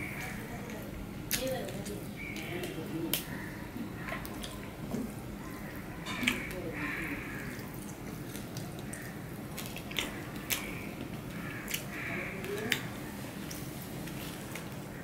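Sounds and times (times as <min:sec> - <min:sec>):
chewing and mouth smacks: 0:07.5 - 0:14.8.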